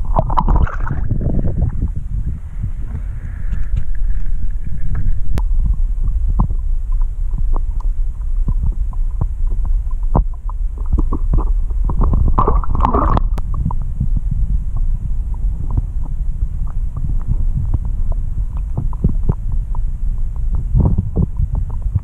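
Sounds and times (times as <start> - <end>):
bubbling and splashing: 0.0 - 2.2, 3.8 - 13.9
muffled underwater rumble: 0.0 - 22.0.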